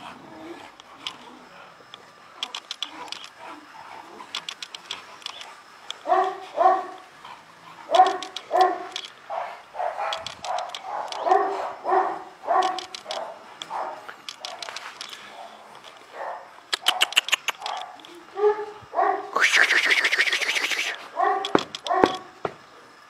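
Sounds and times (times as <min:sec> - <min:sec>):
dog barking: 0:06.0 - 0:07.0, 0:07.9 - 0:14.6, 0:16.2 - 0:19.4, 0:21.2 - 0:22.3.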